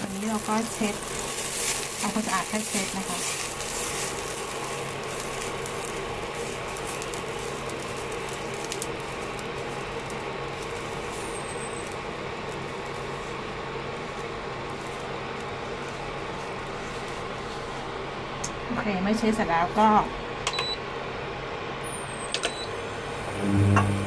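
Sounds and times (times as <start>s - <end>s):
steady hum: 0.0s - 11.1s, 22.7s - 24.0s
tissue rubbing inside frying pan: 0.0s - 18.3s.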